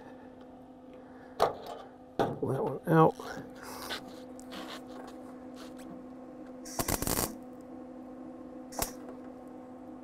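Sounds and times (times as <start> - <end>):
steady hum: 0.0 - 10.0
welder crackling: 6.6 - 7.4, 8.7 - 9.1.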